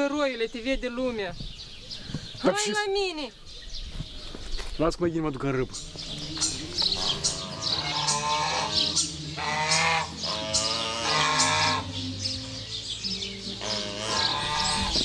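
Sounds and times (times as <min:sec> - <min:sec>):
geese honking: 0:05.8 - 0:15.0.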